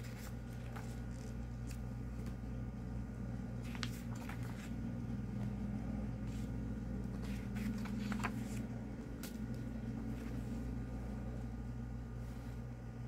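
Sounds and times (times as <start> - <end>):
booklet pages turning: 0.0 - 2.6, 3.6 - 10.8
low hum: 0.0 - 13.0.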